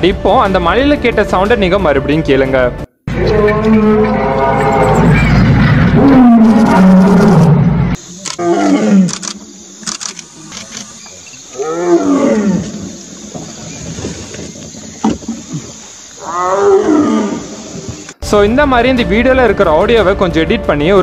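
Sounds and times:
tiger roaring: 3.1s - 9.4s, 11.5s - 14.0s, 15.2s - 18.1s.

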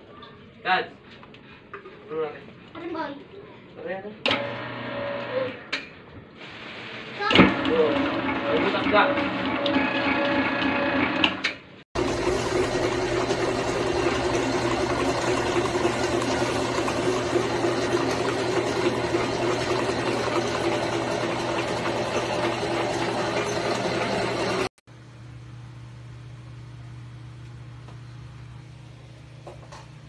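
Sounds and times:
stand mixer humming: 4.3s - 5.4s, 7.5s - 11.4s, 12.0s - 25.5s.

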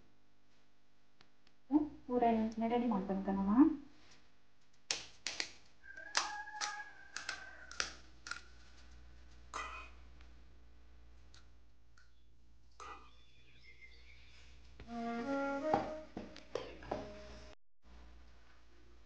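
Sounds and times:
crisp shells cracking: 4.9s - 8.9s.

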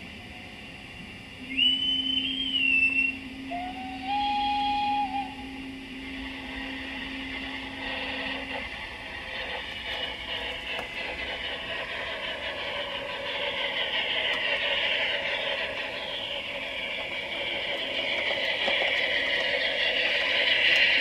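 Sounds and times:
steady low hum: 0.0s - 21.0s
steam whistle tones: 1.4s - 8.6s.

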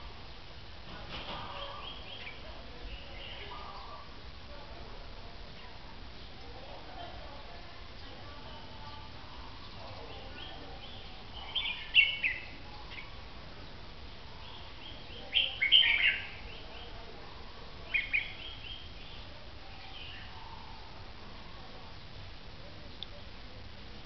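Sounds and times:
bird song bursts: 10.4s - 13.1s.

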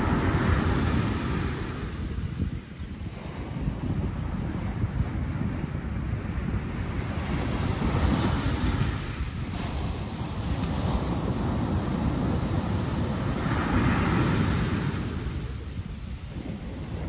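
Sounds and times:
waves breaking on pebble beach: 7.2s - 17.0s.

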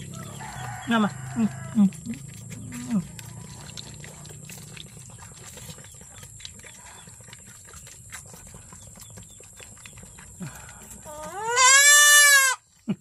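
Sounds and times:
hooves clicking on pen floor: 0.0s - 13.0s.

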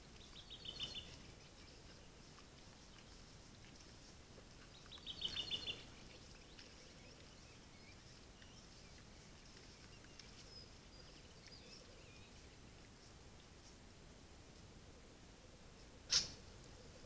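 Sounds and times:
faint bird chirps: 0.2s - 13.8s.

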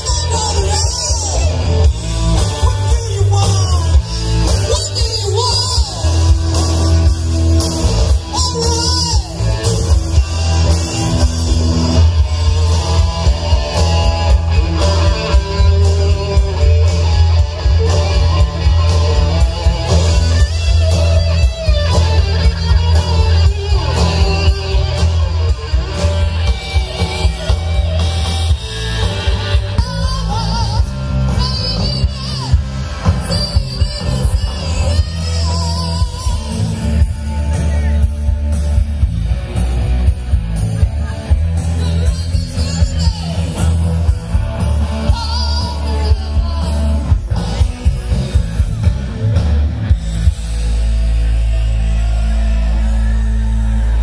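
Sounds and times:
drums: 0.0s - 54.0s
electric guitars: 0.0s - 54.0s
person singing: 26.6s - 38.1s, 41.2s - 48.4s.

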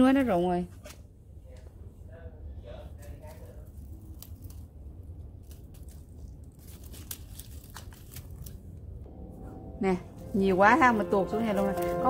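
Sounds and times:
stems snapping: 3.0s - 8.6s
dry vines rustling: 3.0s - 8.9s, 10.4s - 12.0s.

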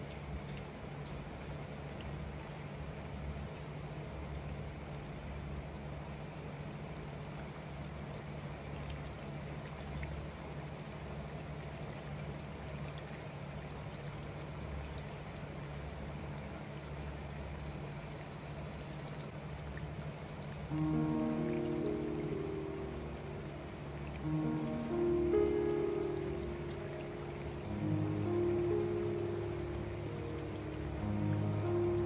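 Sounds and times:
deep-frying sizzle and bubbling: 0.0s - 32.0s
low hum: 20.7s - 32.0s.

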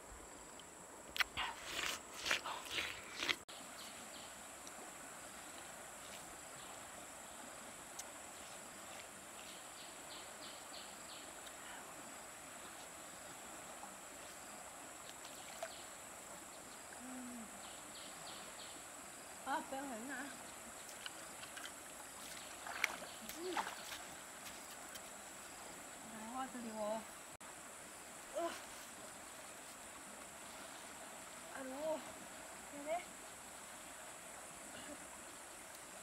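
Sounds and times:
insects droning: 0.0s - 36.0s
rapid insect chirping: 0.0s - 36.0s
biting and chewing watermelon: 1.2s - 3.4s.

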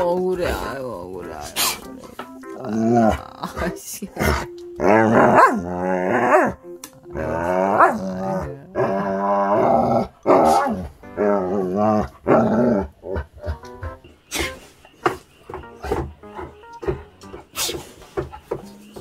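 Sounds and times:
dog grumbling: 2.6s - 13.6s.

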